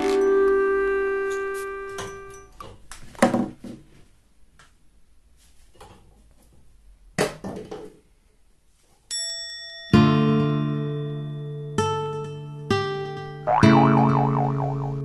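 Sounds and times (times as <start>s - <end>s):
music: 0.0s - 2.5s, 9.2s - 14.0s.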